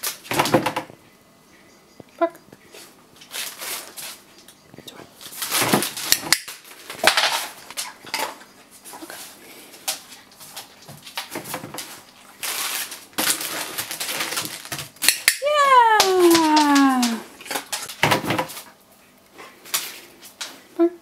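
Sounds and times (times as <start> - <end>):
plastic crinkling: 3.2 - 4.5, 9.9 - 18.7.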